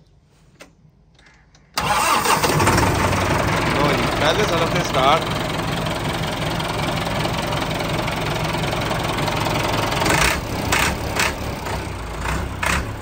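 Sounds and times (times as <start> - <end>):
tractor diesel engine idling: 1.8 - 13.0.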